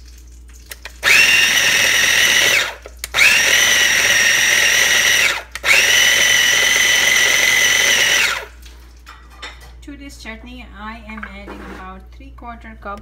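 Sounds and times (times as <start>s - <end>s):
food processor motor whine: 1.0s - 8.5s.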